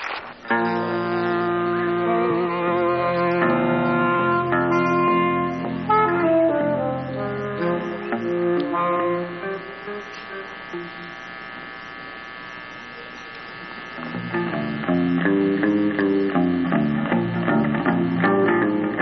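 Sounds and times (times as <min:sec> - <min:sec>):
electric guitar: 0:00.0 - 0:19.0
saxophone: 0:00.4 - 0:11.6
bass guitar: 0:00.5 - 0:10.0, 0:14.0 - 0:19.0.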